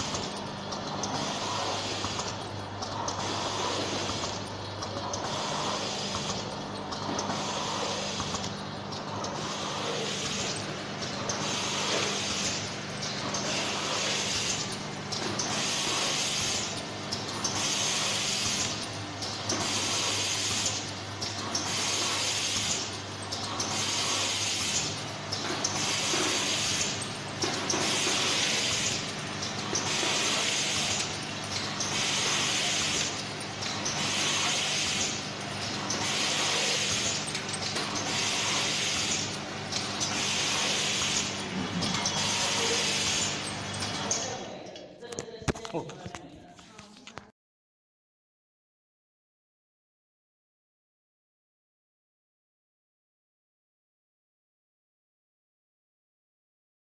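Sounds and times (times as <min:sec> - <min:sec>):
machine motor hum: 0:00.0 - 0:46.2
machine hiss: 0:01.0 - 0:02.4, 0:03.0 - 0:04.4, 0:05.0 - 0:08.5, 0:09.2 - 0:12.7, 0:13.3 - 0:43.5.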